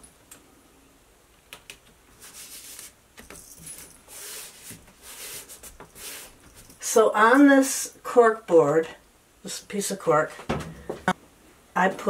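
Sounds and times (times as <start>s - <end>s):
hands rubbing cork sheet: 2.2s - 3.0s, 4.0s - 6.8s.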